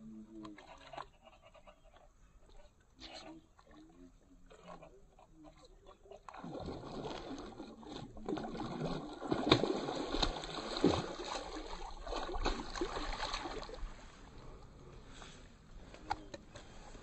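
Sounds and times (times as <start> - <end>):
fish splashing in water: 6.1 - 14.1.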